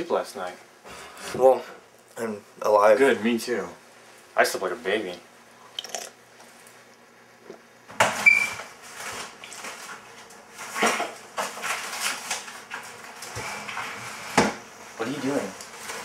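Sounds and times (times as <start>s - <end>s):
kitchen items clattering: 8.9s - 14.6s.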